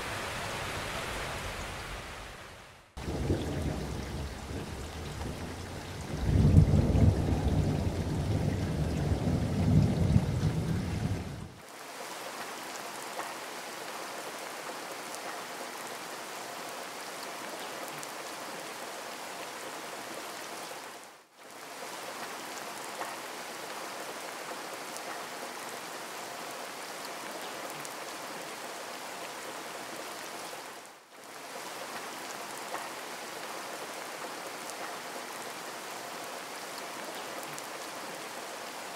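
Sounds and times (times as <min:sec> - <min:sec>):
heavy rain: 0:00.0 - 0:38.9
thunder rumble: 0:03.0 - 0:11.6.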